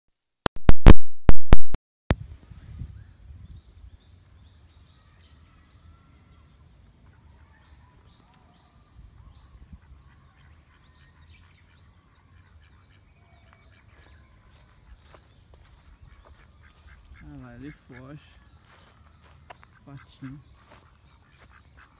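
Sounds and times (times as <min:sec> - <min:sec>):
wind rumble on microphone: 0:02.1 - 0:04.1
faint birdsong: 0:02.3 - 0:21.9.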